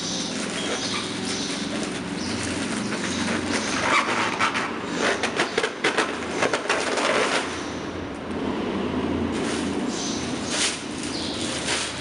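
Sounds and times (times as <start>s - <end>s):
plastic bags crinkling: 0.0s - 4.5s, 9.4s - 12.0s.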